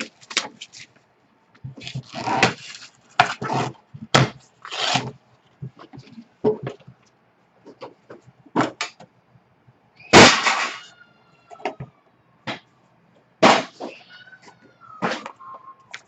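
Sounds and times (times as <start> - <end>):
packaging rustling: 0.0 - 1.0, 1.8 - 3.4.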